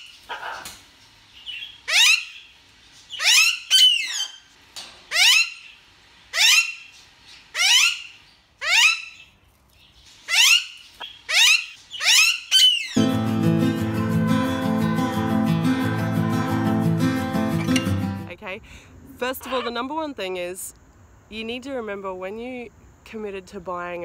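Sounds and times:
parakeet screeching: 0:01.8 - 0:02.5, 0:03.1 - 0:04.4, 0:05.1 - 0:05.7, 0:06.3 - 0:06.9, 0:07.5 - 0:09.2, 0:10.3 - 0:13.0.

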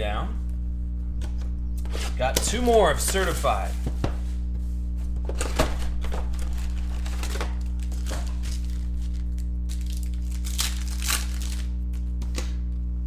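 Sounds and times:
low electrical hum: 0:00.0 - 0:13.0
card wrappers crinkling and tearing: 0:05.4 - 0:12.1.

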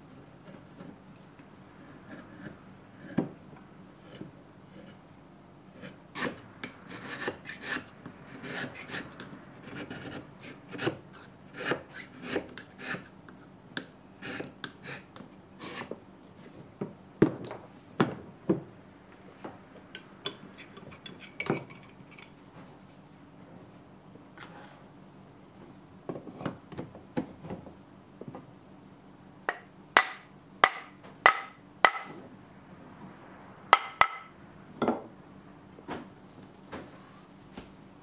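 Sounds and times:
chisel scraping wood: 0:00.2 - 0:01.0, 0:01.8 - 0:03.3, 0:04.0 - 0:05.0, 0:05.7 - 0:13.2, 0:13.8 - 0:16.0.

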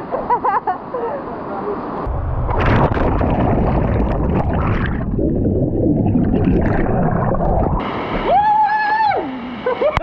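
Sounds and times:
bubbles crackling: 0:02.1 - 0:07.8
underwater churning rumble: 0:02.1 - 0:07.9.

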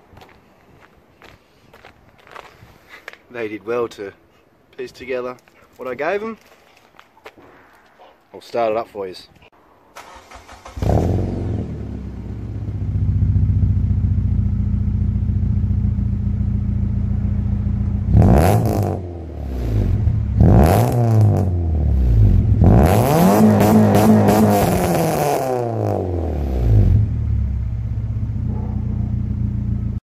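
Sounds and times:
car engine starting and idling: 0:09.9 - 0:30.0
car engine revving: 0:10.0 - 0:30.0.

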